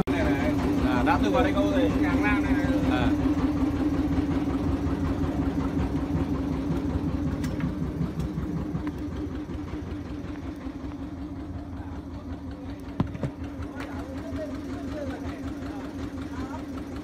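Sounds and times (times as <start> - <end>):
boat motor idling: 0.0 - 17.0.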